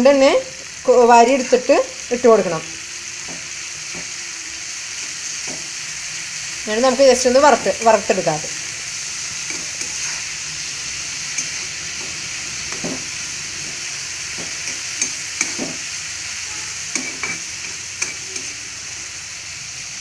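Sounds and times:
prawns sizzling in oil: 0.0s - 20.0s
steel spoon scraping pan: 9.3s - 10.5s, 11.2s - 18.7s.

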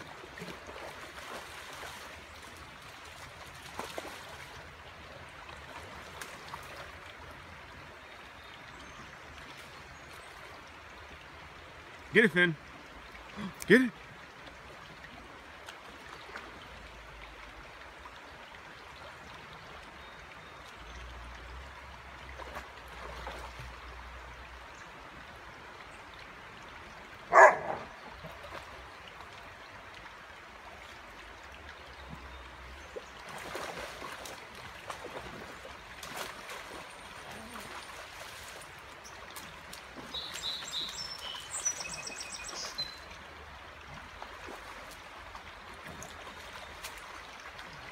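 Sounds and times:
creek water running: 0.0s - 47.9s
dog splashing in water: 33.2s - 38.7s
birds chirping: 40.0s - 43.1s.

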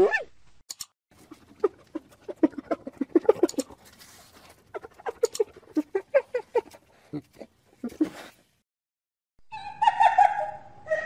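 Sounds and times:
hyena giggling: 1.2s - 3.8s, 4.7s - 8.4s.

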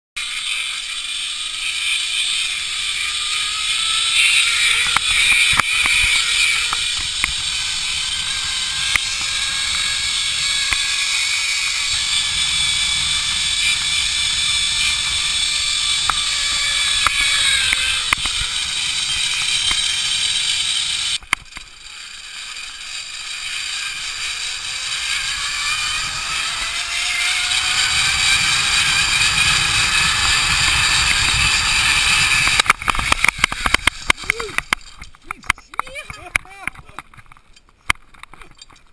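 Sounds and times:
zip-line pulleys whining: 0.2s - 37.1s
clicks and rattles: 31.0s - 38.9s.

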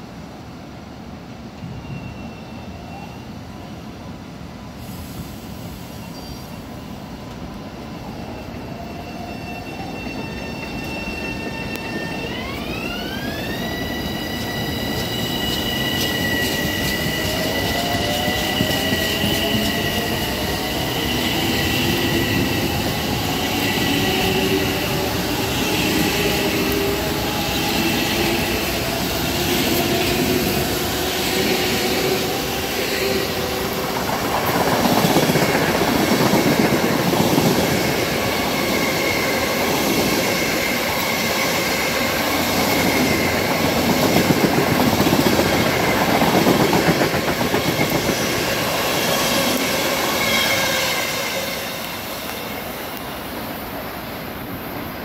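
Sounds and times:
train wheels clickety-clack: 9.8s - 52.6s.

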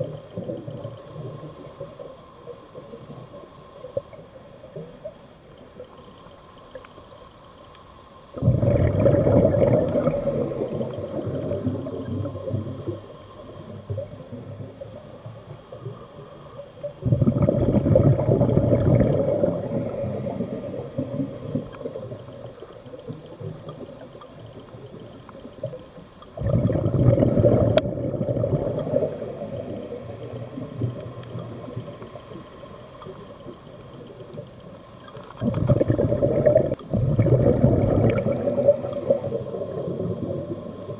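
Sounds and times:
diver exhaling bubbles: 8.4s - 13.0s, 17.0s - 22.2s, 26.4s - 33.3s, 35.4s - 40.9s.

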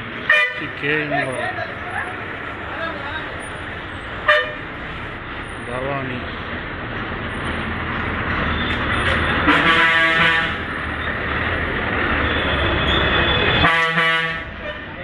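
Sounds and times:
diesel bus engine rumbling: 0.0s - 15.0s
bus horn blaring: 0.2s - 0.9s, 4.2s - 4.7s, 9.4s - 10.8s, 13.2s - 15.0s.

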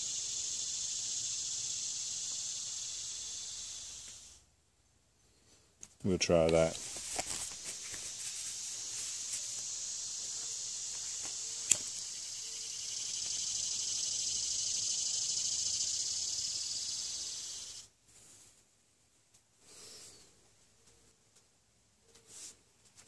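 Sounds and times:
high-pitched insect buzz: 0.0s - 4.4s, 7.4s - 17.9s
lighter click: 11.6s - 12.0s.

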